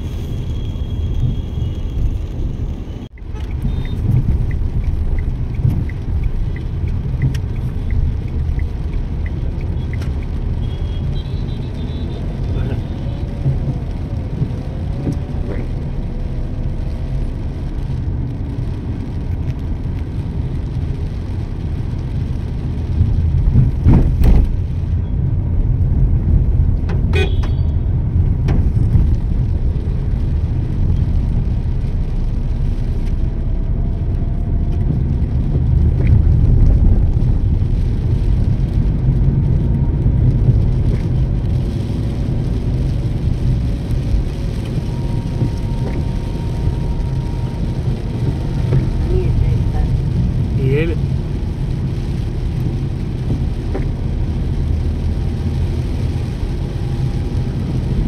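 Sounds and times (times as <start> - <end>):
wind and road noise: 0.0 - 58.0
faint car horn: 27.1 - 27.8.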